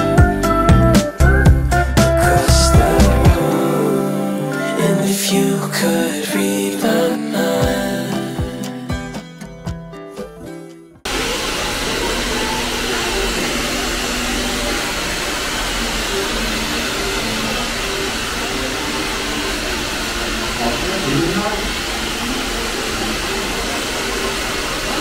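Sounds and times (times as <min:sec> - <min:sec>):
hair dryer blowing: 0:02.2 - 0:05.3, 0:11.1 - 0:25.0.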